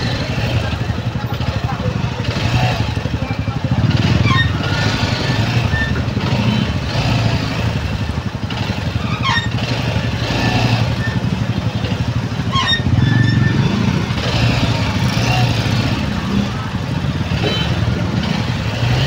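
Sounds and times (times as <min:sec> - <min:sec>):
motorcycle engine rumbling: 0:00.0 - 0:19.0
short falling squeaks: 0:04.2 - 0:04.8, 0:12.4 - 0:13.7.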